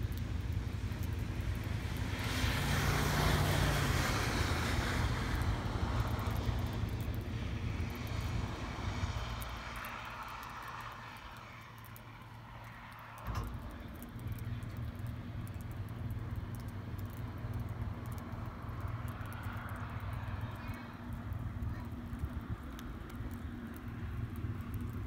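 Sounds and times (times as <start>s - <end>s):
vehicle passing by: 1.8s - 14.3s.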